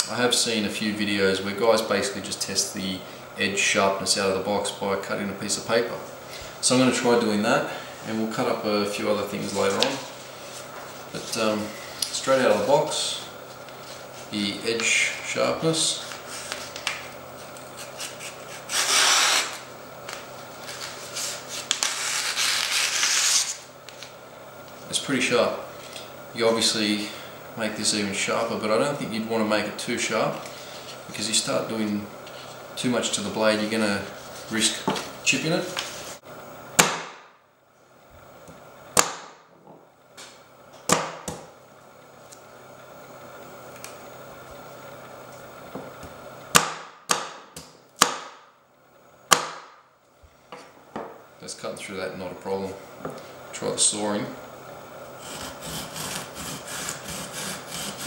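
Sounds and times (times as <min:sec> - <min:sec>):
knife slicing paper: 0:17.8 - 0:19.6, 0:20.7 - 0:23.6
knife chopping on wooden board: 0:46.6 - 0:48.4.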